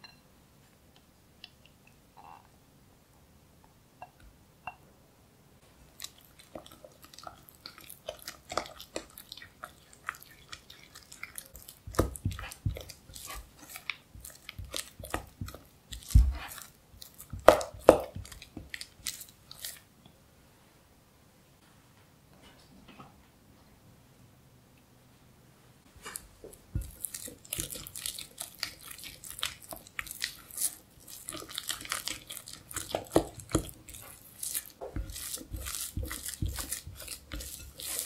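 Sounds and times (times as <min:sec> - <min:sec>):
spatula beating cream cheese in bowl: 0:05.9 - 0:19.9, 0:26.0 - 0:38.0.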